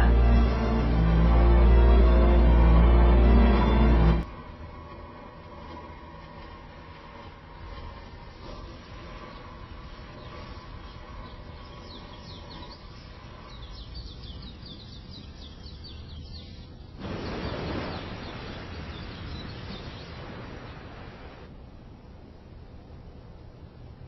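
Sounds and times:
steady rushing noise: 0.0 - 15.8, 16.7 - 24.0
background ambience: 0.0 - 24.0
birds chirping: 8.1 - 21.5.

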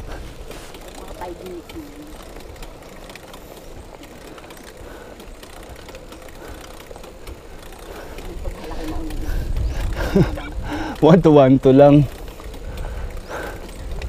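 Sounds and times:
bicycle freewheel ticking: 0.0 - 14.0
road noise: 0.0 - 14.0
wind hiss: 0.0 - 14.0.

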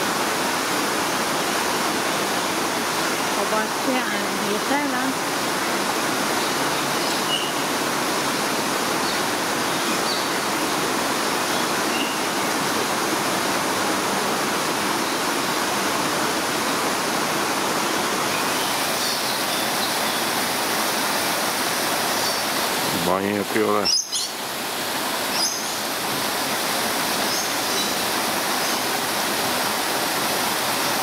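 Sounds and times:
rushing water: 0.0 - 31.0
faint bird chirps: 6.9 - 7.7, 23.8 - 24.4, 25.3 - 25.8.

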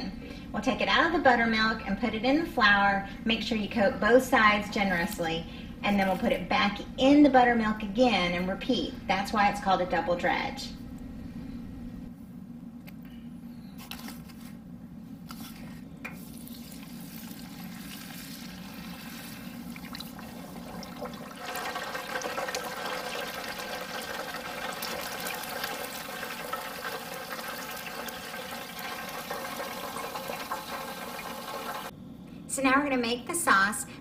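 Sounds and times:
low steady hum: 0.0 - 34.0
chicken deep-frying in oil: 16.2 - 31.9.

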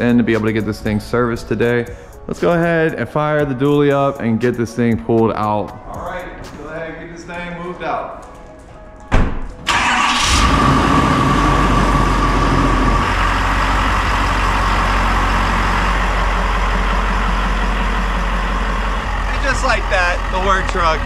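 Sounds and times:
truck engine starting and running: 9.6 - 21.0.

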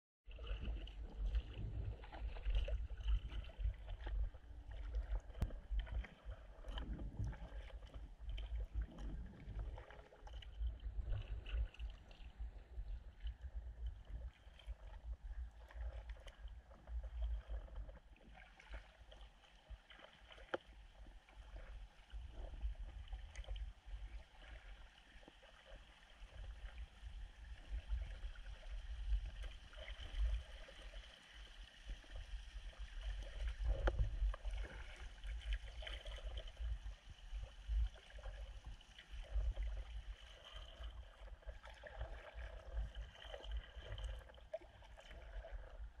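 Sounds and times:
water lapping at kayak hull: 0.2 - 46.0
water gurgling and dripping off paddle: 0.3 - 46.0
low rumble: 0.4 - 15.3.

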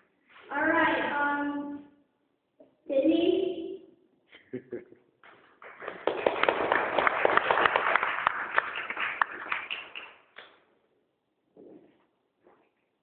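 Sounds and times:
audience clapping: 5.2 - 10.6.

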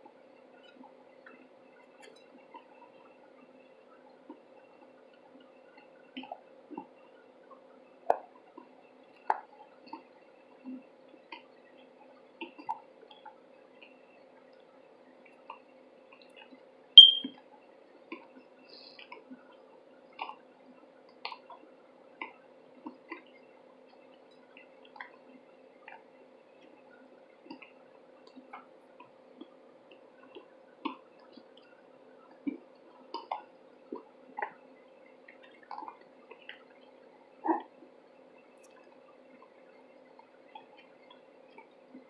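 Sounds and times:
faint steady hum: 0.0 - 42.0.

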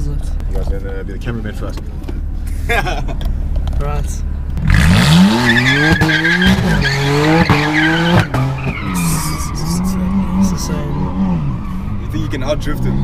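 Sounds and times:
car engine revving hard: 4.6 - 13.0
tyres squealing and skidding: 4.7 - 13.0.

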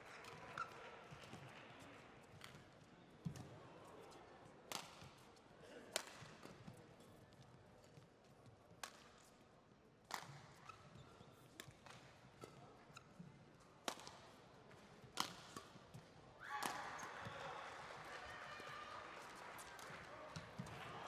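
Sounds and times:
rackets hitting shuttlecock: 8.8 - 9.1, 10.1 - 10.8, 11.6 - 12.6, 13.8 - 14.2, 14.8 - 17.4.

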